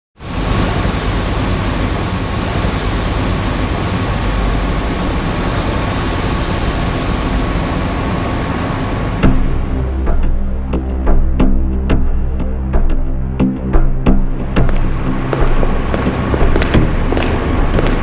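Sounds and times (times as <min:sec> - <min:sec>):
faint steady whine: 0:00.2 - 0:10.6
pressurised pipework rushing hiss: 0:00.2 - 0:10.8, 0:14.2 - 0:18.0.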